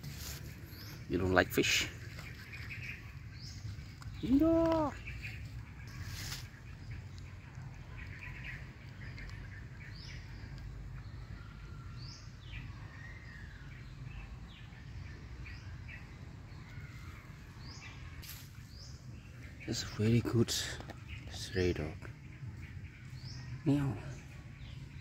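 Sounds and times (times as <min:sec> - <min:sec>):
birds chirping downward: 0:00.0 - 0:25.0.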